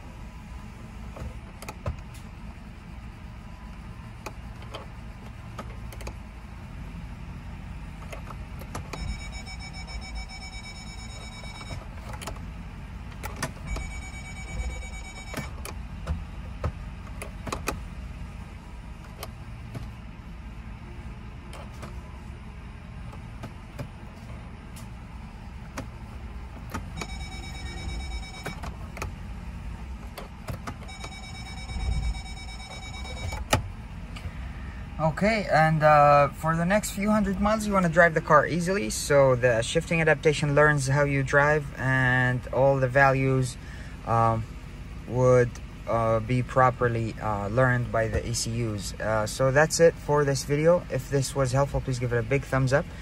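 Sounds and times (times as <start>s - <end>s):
car engine idling: 0.0s - 53.0s
parking sensor rapid beeping: 7.9s - 17.8s, 25.4s - 33.8s.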